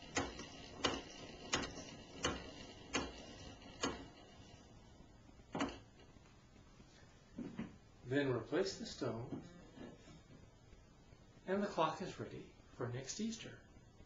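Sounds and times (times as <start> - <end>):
clock winding ratchet clicks: 0.0 - 4.6.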